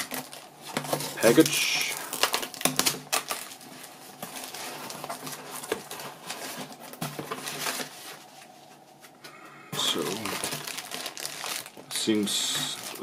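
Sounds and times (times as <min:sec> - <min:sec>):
packing paper crinkling: 0:00.0 - 0:09.1, 0:09.8 - 0:13.0.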